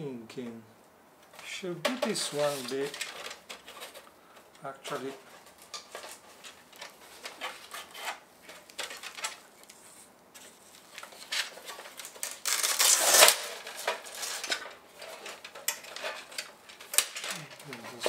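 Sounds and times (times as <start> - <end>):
rustling scrape: 1.3 - 18.0
metal parts clinking and rattling: 11.5 - 18.0.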